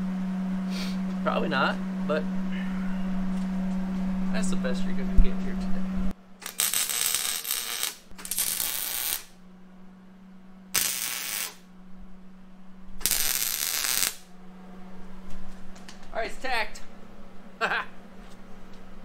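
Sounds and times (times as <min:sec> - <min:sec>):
steady low hum: 0:00.0 - 0:19.0
welder crackling: 0:06.4 - 0:09.4, 0:10.7 - 0:11.7, 0:13.0 - 0:14.3.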